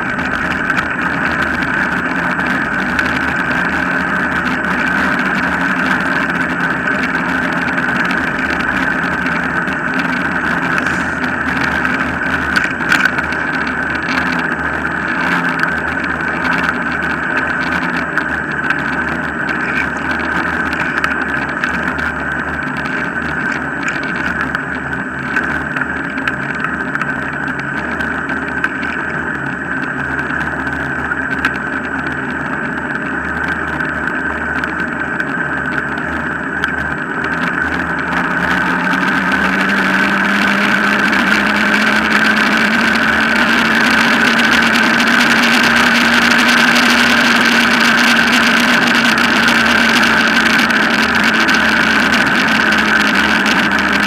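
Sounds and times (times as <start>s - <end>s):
rising hum: 0.0s - 21.9s, 35.9s - 54.0s
wheels rolling on tarmac: 0.0s - 54.0s.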